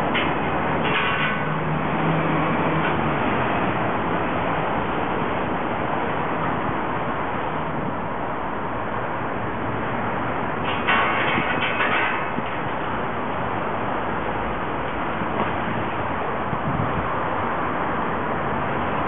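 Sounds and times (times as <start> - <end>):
passing vehicle engine hum: 0.0 - 10.6
street traffic: 0.0 - 19.0.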